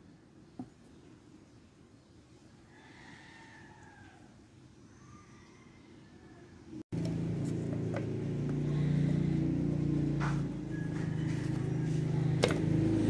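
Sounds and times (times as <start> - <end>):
motor running steadily: 6.9 - 13.0.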